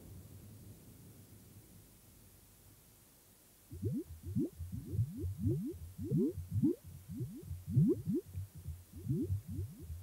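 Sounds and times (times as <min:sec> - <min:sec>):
bubbly electronic bloops: 0:03.7 - 0:10.0
low pulsing hum: 0:03.7 - 0:10.0.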